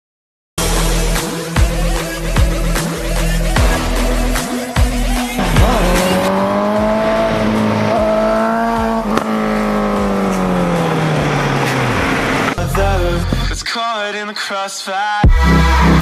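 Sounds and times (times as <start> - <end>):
motorcycle engine at high revs: 5.2 - 12.6.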